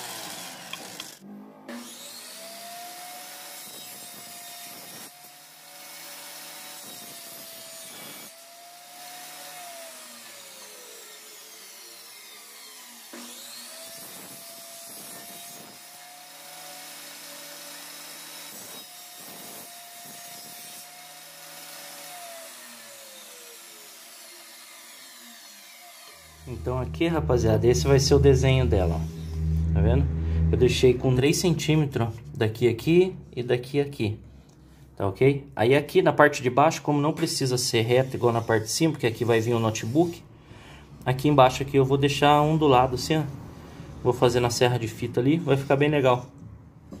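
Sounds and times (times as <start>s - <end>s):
saw blade rasping through wood: 0.0s - 29.5s
table saw whining: 0.0s - 32.4s.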